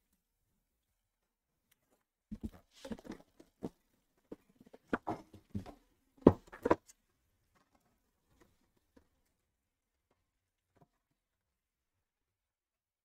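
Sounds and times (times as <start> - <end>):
boxes knocking on a tabletop: 4.8 - 6.8.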